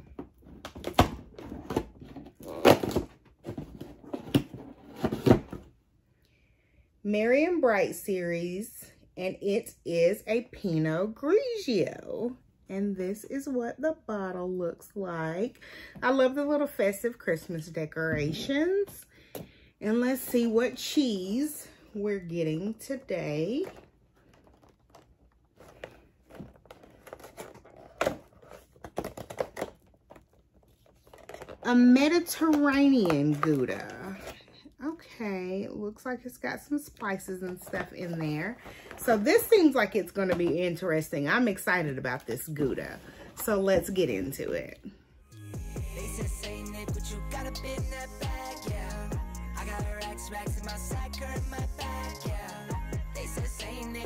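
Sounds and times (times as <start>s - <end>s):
cardboard tearing and crinkling: 23.6s - 31.7s.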